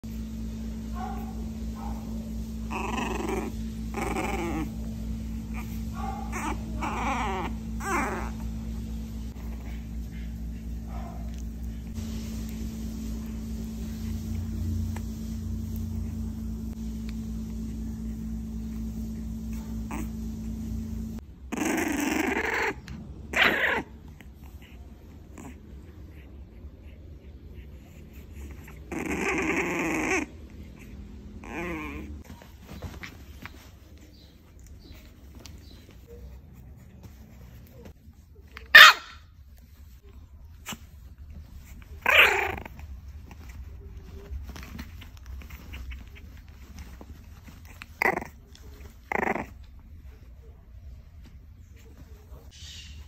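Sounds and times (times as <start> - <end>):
low steady hum: 0.0 - 53.0
dog barking: 0.9 - 2.2, 5.9 - 6.9, 10.9 - 11.4, 38.7 - 39.2
puppy yapping and whining: 1.0 - 8.6, 19.5 - 20.2, 21.5 - 25.6, 27.8 - 36.4, 37.1 - 39.3, 40.6 - 49.6.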